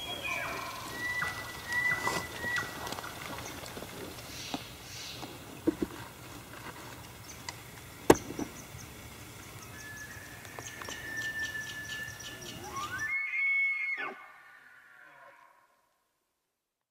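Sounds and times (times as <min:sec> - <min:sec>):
elk bugling: 0:00.0 - 0:05.3, 0:09.6 - 0:15.5.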